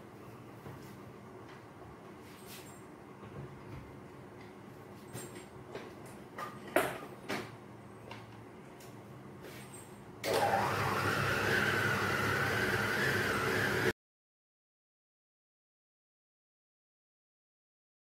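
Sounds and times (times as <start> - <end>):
food chopper motor whining: 10.2 - 13.9
food chopper parts clicking: 10.2 - 13.9.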